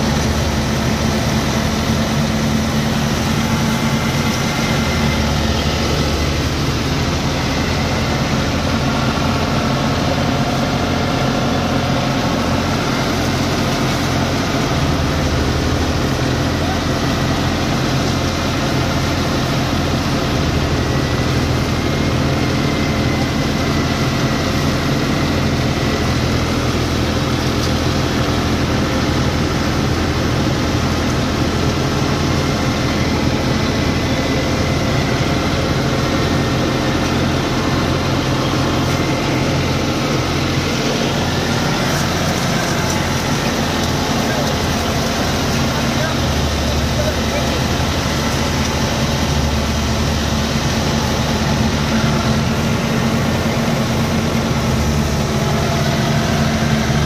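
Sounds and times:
thresher droning: 0:00.0 - 0:57.0
tractor diesel engine running: 0:00.0 - 0:57.0.

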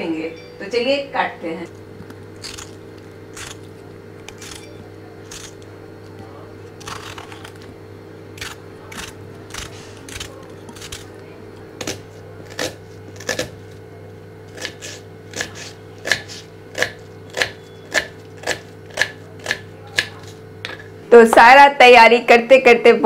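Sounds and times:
steady low hum: 0:00.0 - 0:23.0
knife chopping on wooden board: 0:11.8 - 0:13.6, 0:14.5 - 0:20.8.

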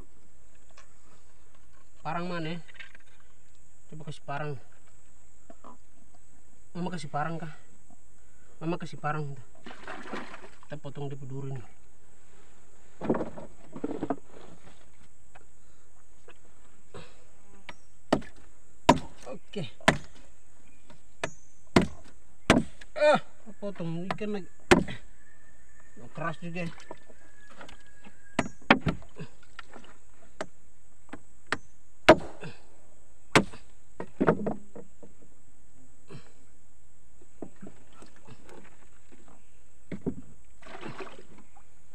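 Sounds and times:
scuff and knock in wooden boat: 0:13.0 - 0:14.9, 0:33.4 - 0:35.2, 0:37.4 - 0:41.5
machete chopping fish spine: 0:18.1 - 0:20.2, 0:21.2 - 0:23.0, 0:24.7 - 0:25.0, 0:28.4 - 0:29.0, 0:31.5 - 0:32.5, 0:33.3 - 0:33.7.

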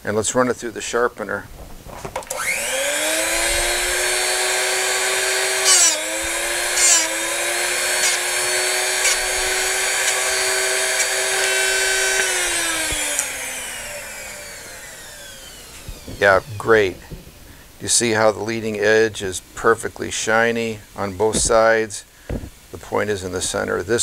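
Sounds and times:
motor spinning down: 0:02.3 - 0:17.5
motor whine: 0:02.3 - 0:17.7
grinding rasps: 0:02.4 - 0:24.0.

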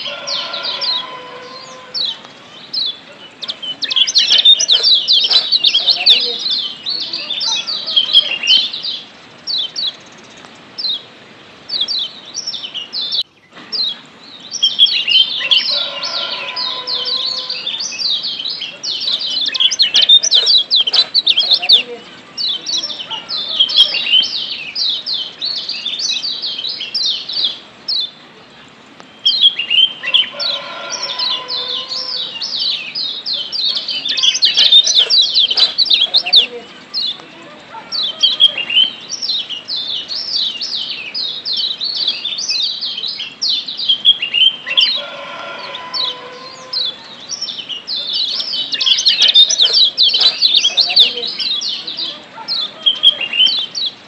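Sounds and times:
bird chirping and chattering: 0:00.0 - 0:54.0.

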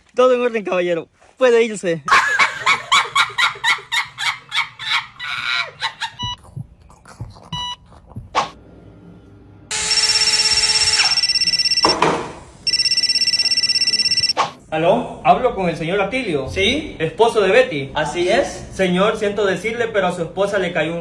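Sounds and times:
woman making rhythmic vocal sounds: 0:06.1 - 0:08.5
short electronic beeps: 0:09.7 - 0:12.0, 0:12.6 - 0:14.4
mobile phone ringtone: 0:09.7 - 0:14.4.

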